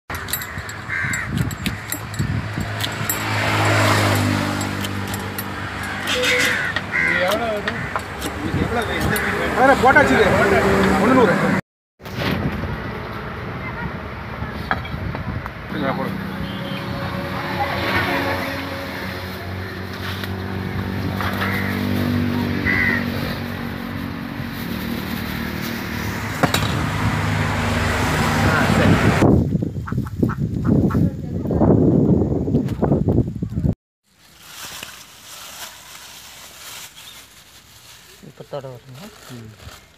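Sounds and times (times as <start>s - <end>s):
crow cawing: 0.5s - 1.9s, 5.8s - 8.2s, 21.3s - 22.0s, 22.6s - 23.1s
engine drone: 15.6s - 29.2s.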